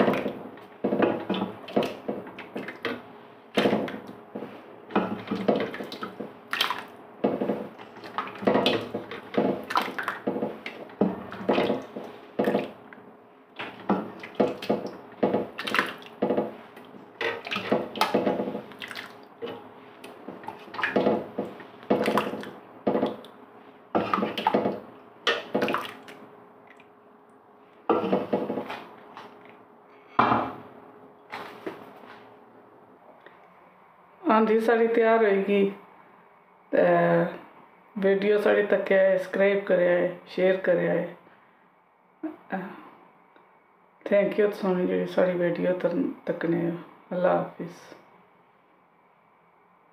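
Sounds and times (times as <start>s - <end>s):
ladle knocking and scraping pot: 3.6s - 6.4s, 7.2s - 12.8s, 16.2s - 18.8s, 24.0s - 25.6s, 27.9s - 28.8s
broth splashing and dripping: 5.0s - 12.9s, 13.6s - 23.4s, 24.0s - 26.9s.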